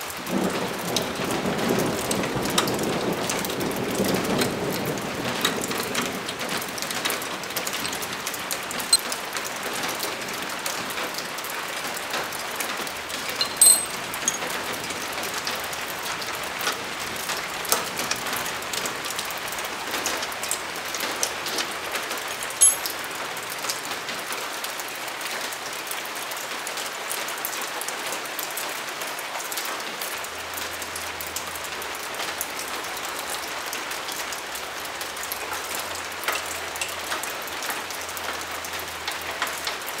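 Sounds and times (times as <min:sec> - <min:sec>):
steady rain: 0:00.0 - 0:40.0
tools clicking on metal: 0:13.4 - 0:14.4, 0:22.4 - 0:23.0.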